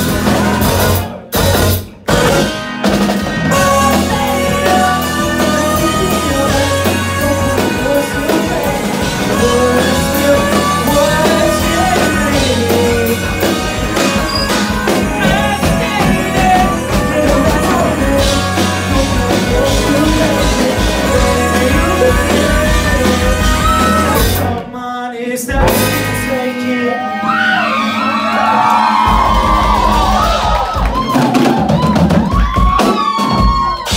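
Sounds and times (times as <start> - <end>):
drum kit: 0.0 - 24.8, 25.5 - 26.6, 28.7 - 33.9
electric guitar: 0.0 - 24.8, 25.5 - 33.9
keyboard playing: 2.1 - 24.7.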